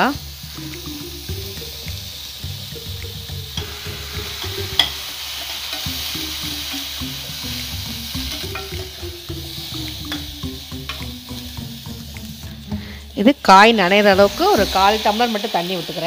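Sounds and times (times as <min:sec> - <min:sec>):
vegetables sizzling in oil: 0:00.0 - 0:16.0
spatula clicking against pan: 0:02.9 - 0:03.7, 0:09.9 - 0:11.2.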